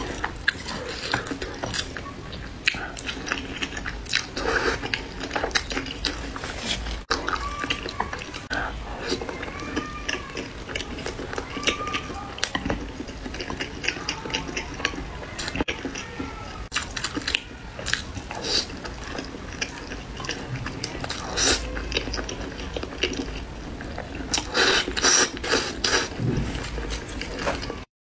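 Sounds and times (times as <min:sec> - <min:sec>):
chewing noodles: 0:00.0 - 0:27.9
slurping noodles: 0:24.3 - 0:27.6.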